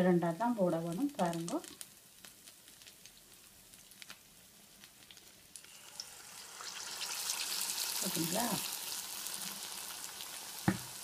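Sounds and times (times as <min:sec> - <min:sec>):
batter sizzling in oil: 0:00.0 - 0:11.0
frying oil crackling and popping: 0:00.0 - 0:11.0.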